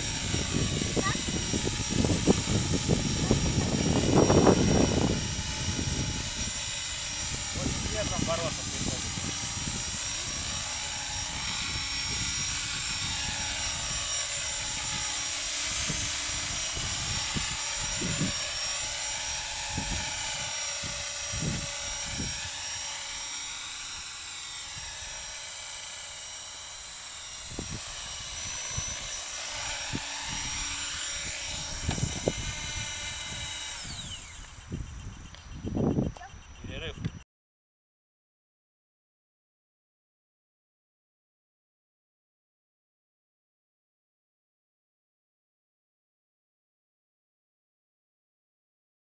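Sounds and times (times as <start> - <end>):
wind buffeting microphone: 0.0 - 22.6, 27.4 - 37.2
model helicopter motor whine: 0.0 - 37.2.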